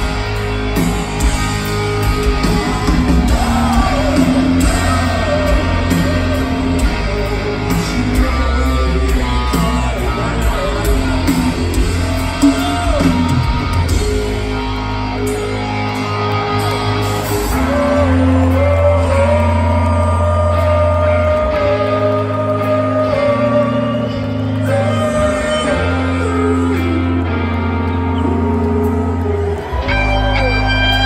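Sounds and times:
bass guitar: 0.0s - 31.0s
distorted electric guitars: 0.0s - 31.0s
drums: 0.0s - 31.0s
person singing lead: 17.3s - 31.0s.

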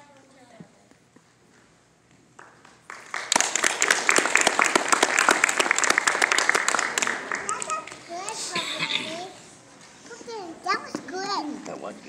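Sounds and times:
audience applause: 2.4s - 8.6s.

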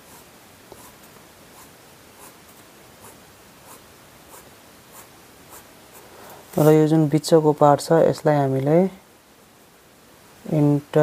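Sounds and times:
marker pen scratching on paper: 0.0s - 6.0s.

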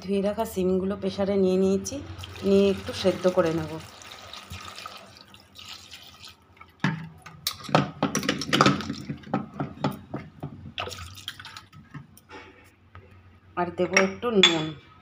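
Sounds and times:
water trickling: 2.1s - 6.8s, 10.8s - 11.8s
water splashing and dripping in pot: 2.1s - 7.7s, 10.7s - 12.0s.

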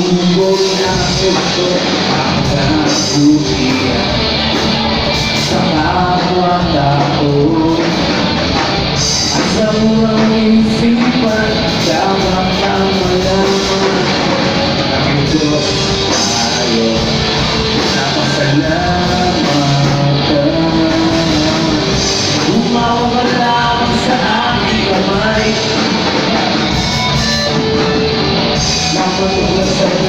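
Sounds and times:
bass guitar: 0.0s - 30.0s
electric guitar: 0.0s - 30.0s
male singer singing: 0.0s - 30.0s.

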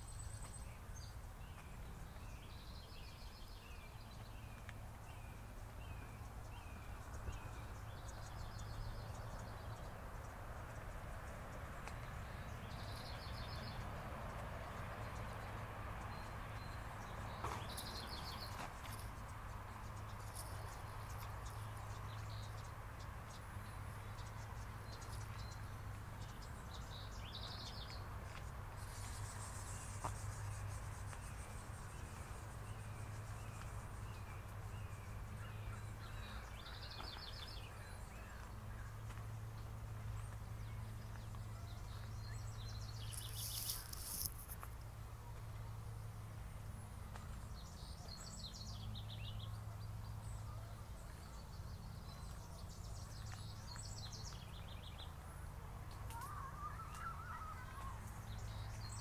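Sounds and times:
bird chirping: 14.8s - 44.6s, 56.1s - 59.0s
birds calling: 41.1s - 44.6s, 56.1s - 59.0s.

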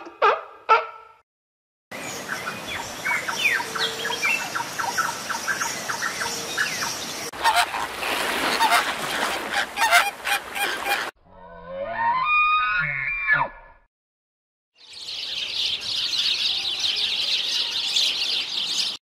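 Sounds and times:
flamingos honking: 7.3s - 11.1s.

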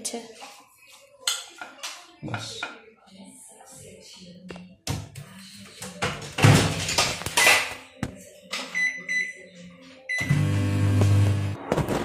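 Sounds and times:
oven humming: 10.2s - 11.6s.

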